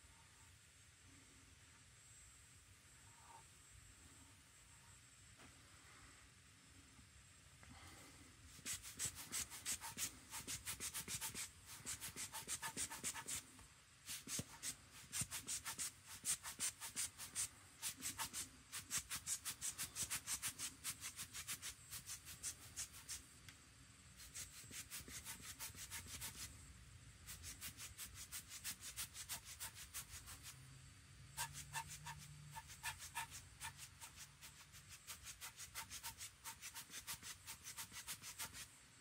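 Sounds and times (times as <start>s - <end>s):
air blower hissing puffs: 7.6s - 21.2s.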